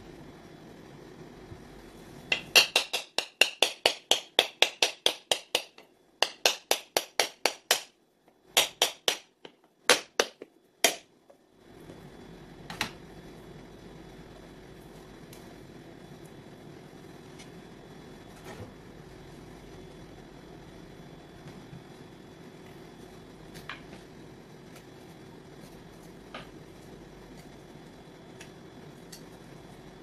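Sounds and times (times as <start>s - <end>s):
knife tapping coconut shell: 2.3s - 7.9s.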